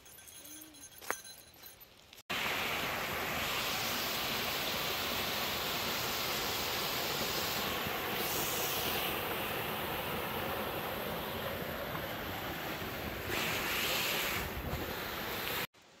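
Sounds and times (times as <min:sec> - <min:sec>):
waterfall rushing: 0:02.3 - 0:14.4.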